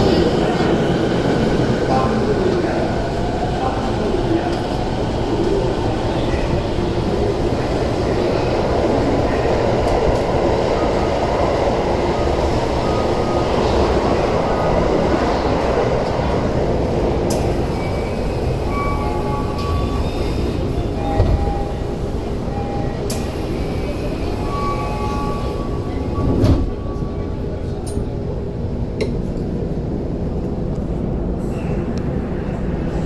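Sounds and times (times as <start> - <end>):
train rumbling on rails: 0.0 - 33.0
train doors hissing open: 17.3 - 26.8.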